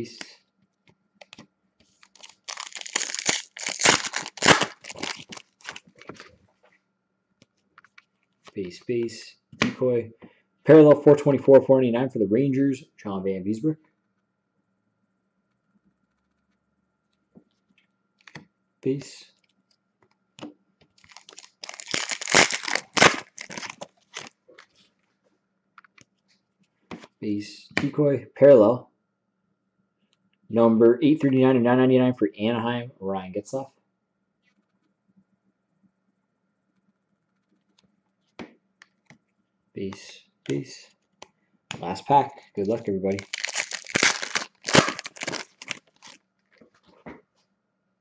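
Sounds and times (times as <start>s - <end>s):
plastic wrapper tearing and crinkling: 2.0s - 6.3s, 21.0s - 24.4s, 42.6s - 46.2s.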